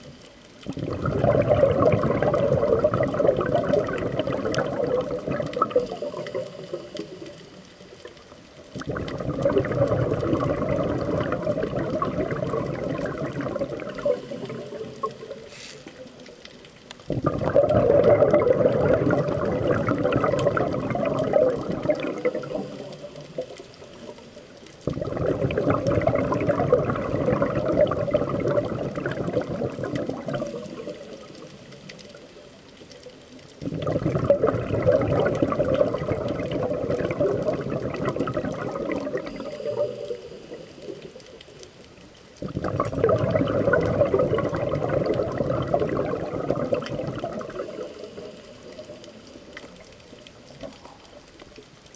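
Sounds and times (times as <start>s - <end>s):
underwater breath bubbling: 0.6s - 51.6s.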